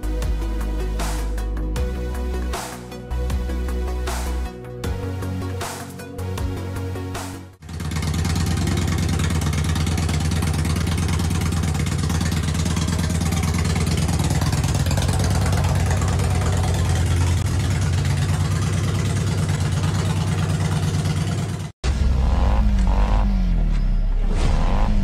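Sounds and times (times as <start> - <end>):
motorcycle engine idling: 7.6 - 23.5.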